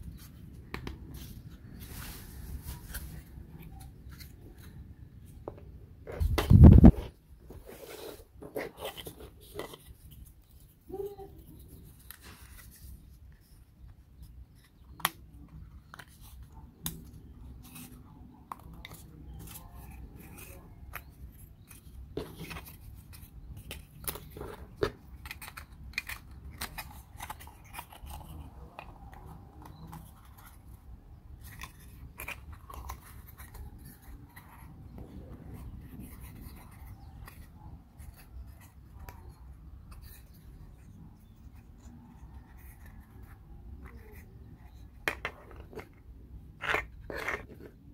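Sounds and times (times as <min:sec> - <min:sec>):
wooden pieces clicking and tapping: 0:43.8 - 0:46.0.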